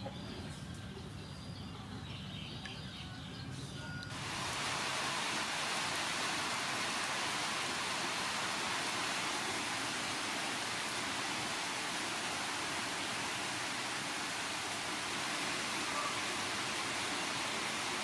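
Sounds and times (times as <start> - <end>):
rain on leaves: 4.0 - 18.0.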